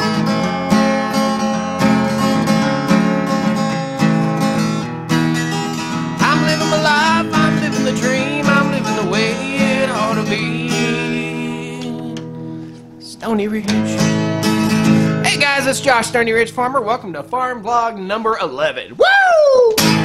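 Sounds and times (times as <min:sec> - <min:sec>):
acoustic guitar strumming: 0:00.0 - 0:18.4, 0:19.8 - 0:20.0
person humming wordless tune: 0:06.2 - 0:12.3.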